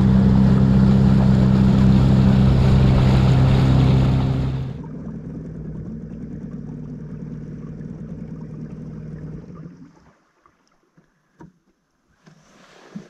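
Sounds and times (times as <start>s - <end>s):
outboard motor running: 0.0s - 9.8s.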